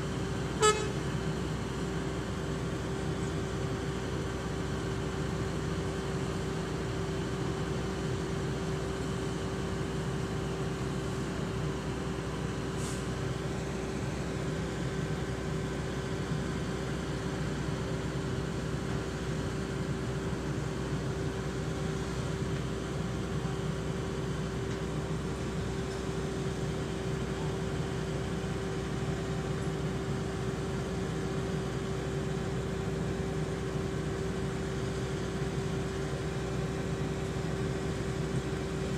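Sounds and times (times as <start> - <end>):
steady hum tone: 0.0 - 6.7.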